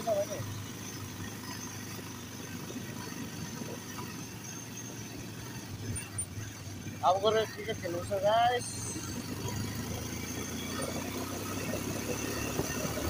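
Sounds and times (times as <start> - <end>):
motorcycle engine running: 0.0 - 13.0
road noise: 0.0 - 13.0.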